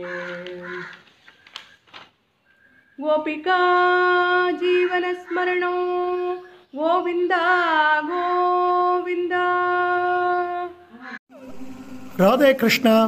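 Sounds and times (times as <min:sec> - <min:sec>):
woman singing unaccompanied: 0:00.0 - 0:01.0, 0:03.0 - 0:11.7.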